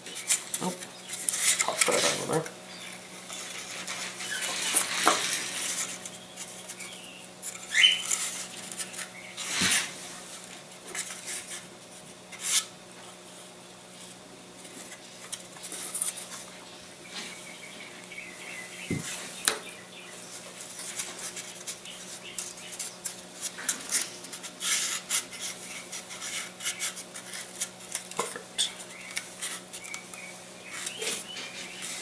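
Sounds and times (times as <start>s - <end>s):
faint steady hum: 0.0s - 32.0s.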